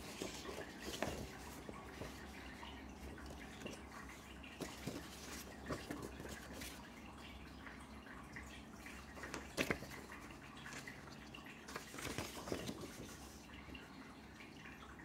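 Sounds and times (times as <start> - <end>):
paper rustling and crinkling: 0.0 - 6.9, 9.0 - 13.8.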